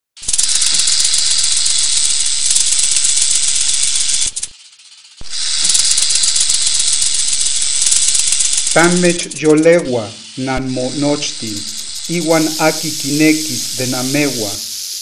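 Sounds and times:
dry rattling hiss: 0:00.2 - 0:15.0.

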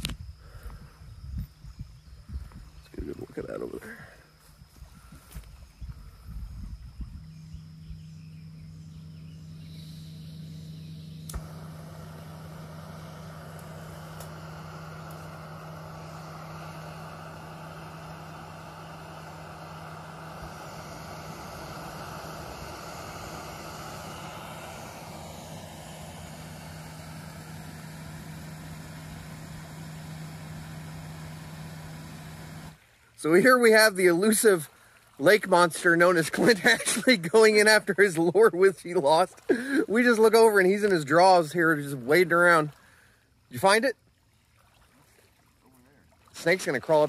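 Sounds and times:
steady low hum: 0:00.0 - 0:47.0
gas burner hissing: 0:09.6 - 0:32.8
stove igniter click: 0:11.2 - 0:11.5, 0:13.6 - 0:14.4.

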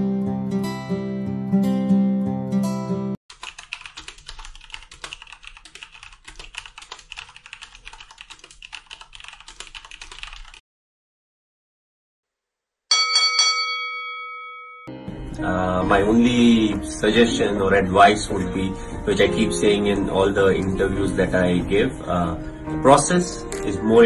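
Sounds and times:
rapid typing key clicks: 0:03.3 - 0:10.6
bell-like ding: 0:12.9 - 0:15.1.

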